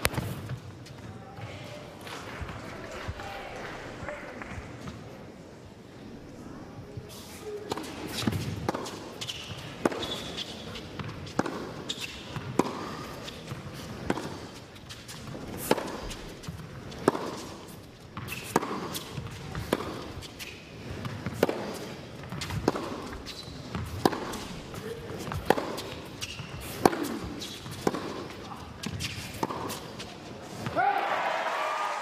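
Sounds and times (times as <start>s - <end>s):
rackets striking tennis ball: 0.0s - 1.0s, 7.6s - 30.8s
ball bouncing on court: 7.7s - 14.4s, 18.2s - 20.1s, 21.0s - 29.8s.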